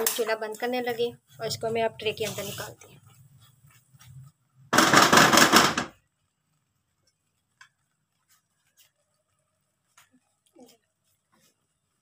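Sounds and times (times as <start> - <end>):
spoon scraping a pan: 0.0 - 0.6.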